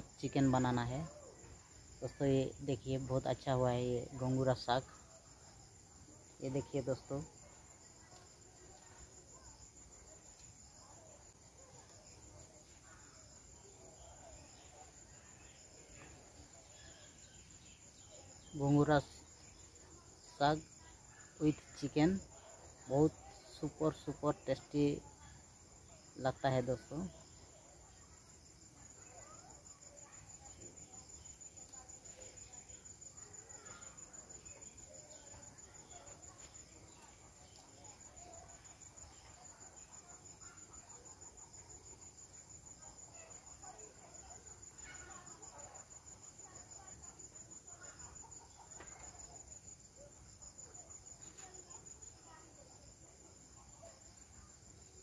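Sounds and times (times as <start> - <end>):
high chirring of insects: 0.0 - 55.0.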